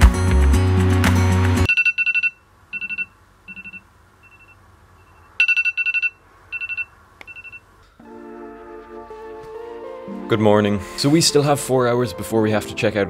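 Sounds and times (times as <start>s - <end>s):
phone alarm beeping: 1.7s - 7.7s.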